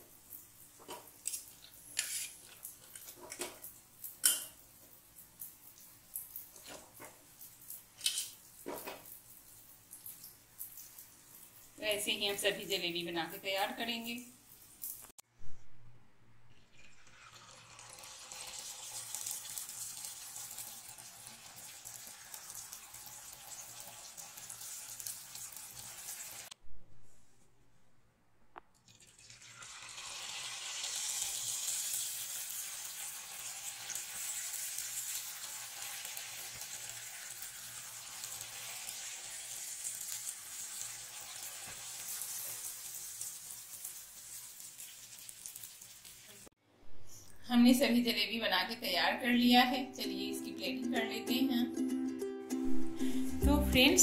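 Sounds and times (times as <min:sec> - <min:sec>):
batter sizzling in hot oil: 0:16.9 - 0:26.6, 0:29.0 - 0:46.6.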